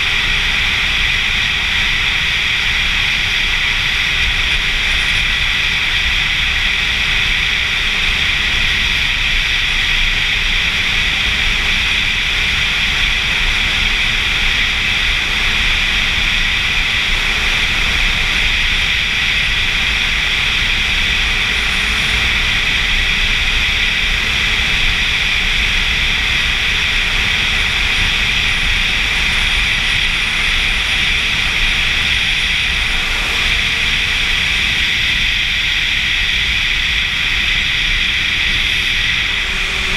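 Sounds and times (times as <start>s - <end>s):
motorcycle engine running: 0.0s - 39.9s
wind rushing over camera: 0.0s - 39.9s.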